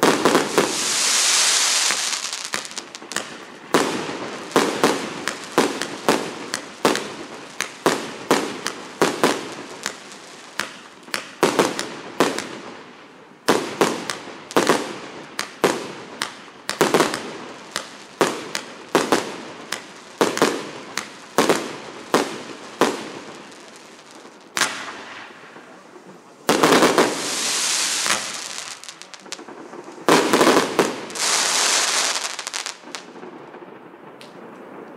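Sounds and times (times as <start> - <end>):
dense fireworks crackle: 0.0 - 34.9
fireworks bangs: 0.0 - 34.9.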